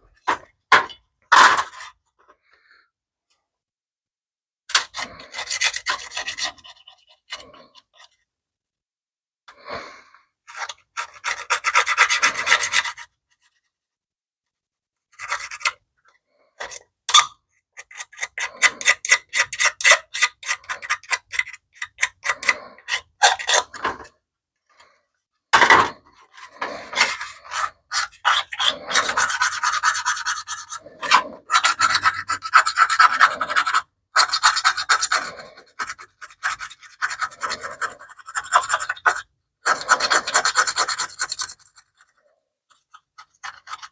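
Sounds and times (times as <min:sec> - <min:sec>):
metal scraper scraping grime: 0:04.7 - 0:08.2, 0:10.5 - 0:13.5, 0:15.1 - 0:15.8, 0:17.8 - 0:24.1, 0:25.6 - 0:43.9.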